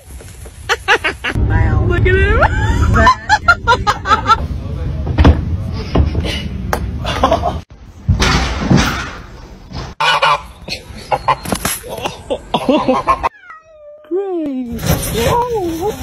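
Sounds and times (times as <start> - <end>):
geese honking: 10.0 - 11.4.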